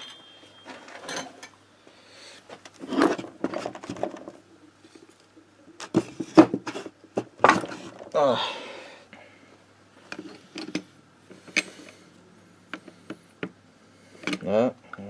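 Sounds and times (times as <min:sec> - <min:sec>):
metal tools clinking: 0:00.0 - 0:01.6.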